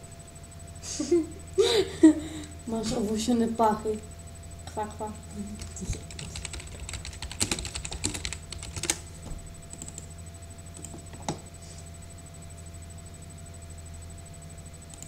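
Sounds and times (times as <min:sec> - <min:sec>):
computer keyboard typing: 0:05.5 - 0:09.1, 0:09.7 - 0:10.1, 0:10.7 - 0:11.4.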